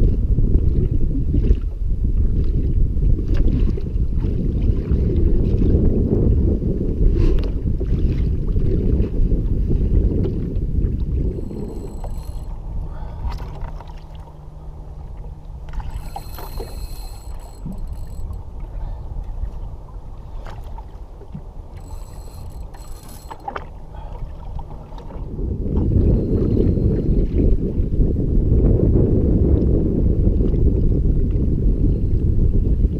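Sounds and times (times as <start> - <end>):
wind buffeting microphone: 0.0 - 32.9
short high-pitched whirs: 11.4 - 12.7, 15.7 - 18.4, 21.7 - 23.6.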